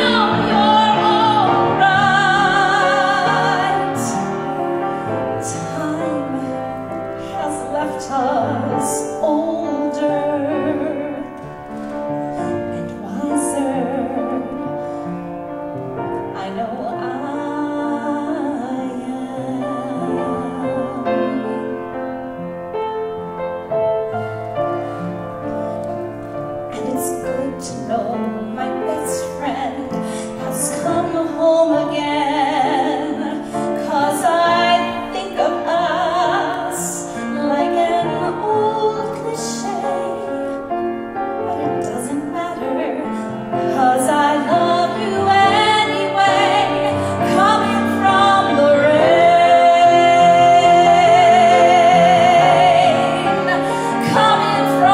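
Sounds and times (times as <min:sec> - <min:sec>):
grand piano: 0:00.0 - 0:54.9
woman singing a slow ballad: 0:12.5 - 0:15.0, 0:16.4 - 0:21.8, 0:26.7 - 0:40.5, 0:41.5 - 0:54.9.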